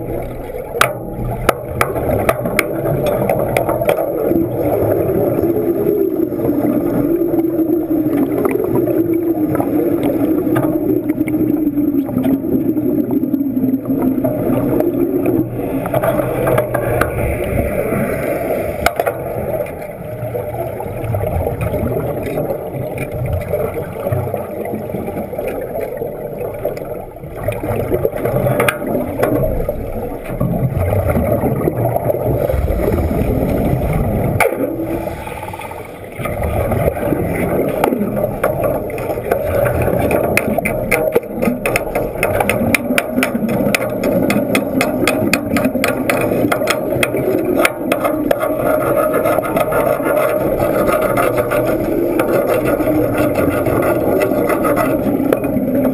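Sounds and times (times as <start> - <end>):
underwater bubbles gurgling: 0.0 - 55.9
low drone sinking in pitch: 31.7 - 36.8.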